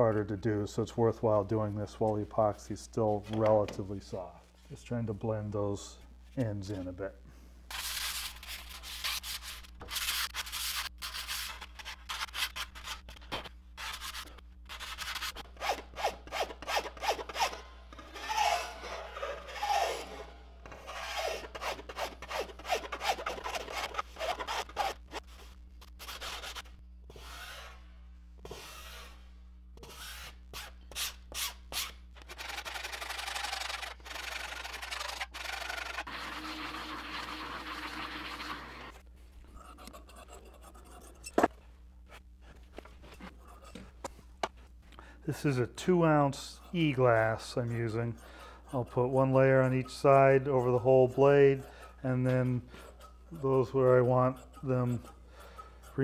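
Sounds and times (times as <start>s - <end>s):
hand file rasping on wood: 14.8s - 25.0s, 45.5s - 56.0s
steady rubbing: 39.2s - 56.0s.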